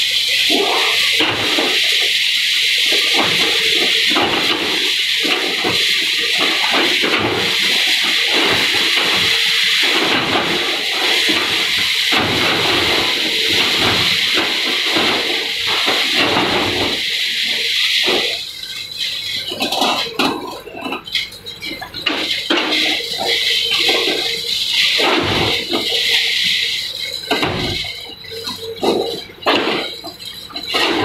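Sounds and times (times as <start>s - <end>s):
excavator bucket breaking structure: 0.0s - 31.0s
excavator diesel engine: 0.0s - 31.0s
debris crunching and falling: 0.4s - 18.5s, 19.4s - 31.0s.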